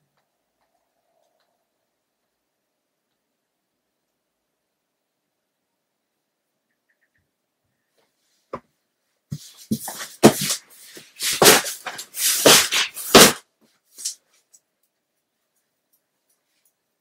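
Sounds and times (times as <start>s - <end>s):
cardboard box bumps: 9.4s - 10.6s.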